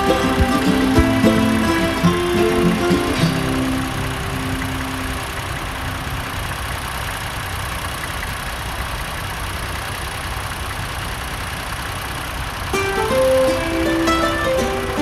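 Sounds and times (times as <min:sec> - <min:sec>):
background music note: 0:00.0 - 0:06.6, 0:12.8 - 0:15.0
tractor engine running: 0:00.0 - 0:15.0.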